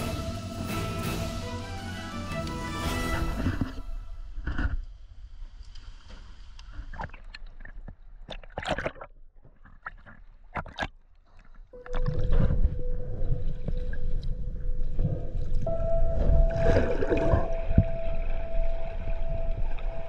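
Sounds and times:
underwater gurgling and sloshing: 0:02.4 - 0:20.0
steady tone: 0:11.8 - 0:20.0.

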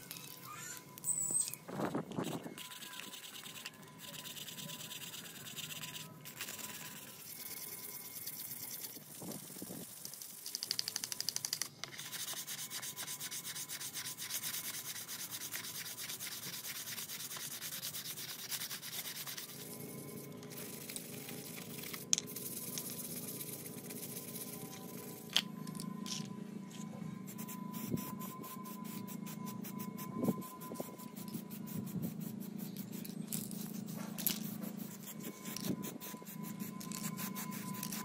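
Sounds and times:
sandpaper rasping on plastic: 0:02.2 - 0:10.7, 0:11.8 - 0:19.8, 0:27.3 - 0:38.0.

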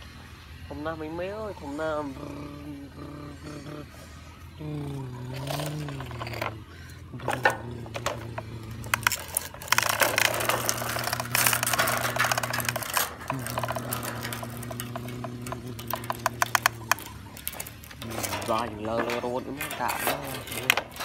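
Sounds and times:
steady low drone: 0:00.0 - 0:21.0
plastic toy truck clicks and scraping: 0:05.2 - 0:21.0.

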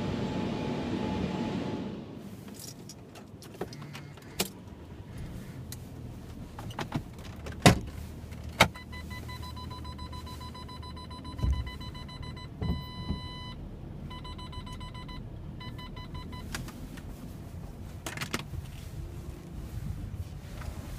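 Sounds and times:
car low hum: 0:00.0 - 0:20.9
parking sensor beeping: 0:08.6 - 0:16.6.

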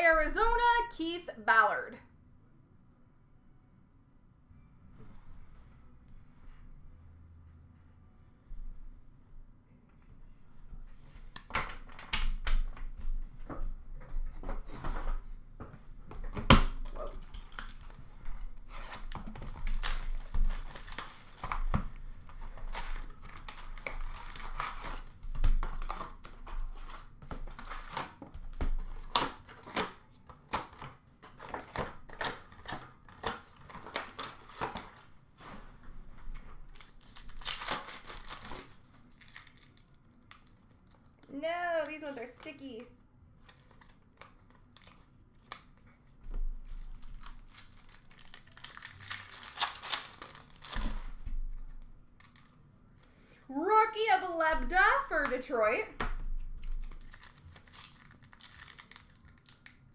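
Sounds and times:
cardboard and foil tearing: 0:18.6 - 0:35.1, 0:36.6 - 0:41.1, 0:43.4 - 0:45.8, 0:46.6 - 0:52.7, 0:56.6 - 0:59.9.

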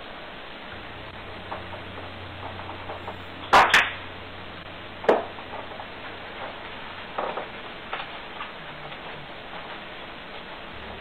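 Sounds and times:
microphone hiss: 0:00.0 - 0:11.0.

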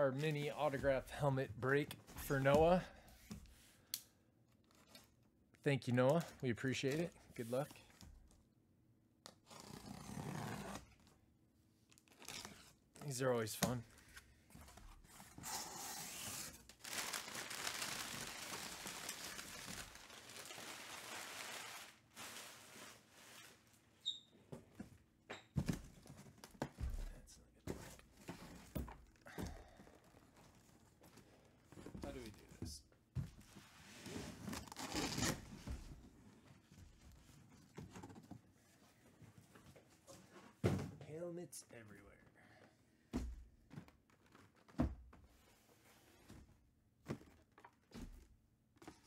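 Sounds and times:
paper packing rustling: 0:16.1 - 0:23.8.

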